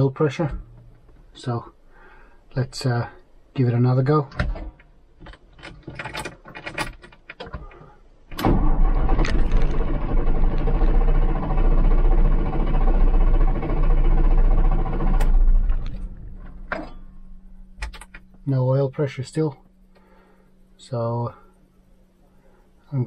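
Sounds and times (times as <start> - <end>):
diesel engine cranking without firing: 5.3 - 18.3.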